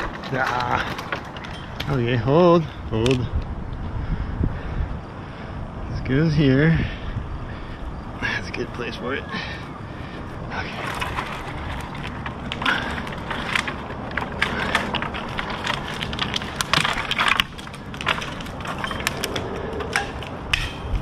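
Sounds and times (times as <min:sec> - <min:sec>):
rustling: 0:00.0 - 0:02.2, 0:09.4 - 0:21.0
dry wood crackling and snapping: 0:00.0 - 0:03.8, 0:09.3 - 0:21.0.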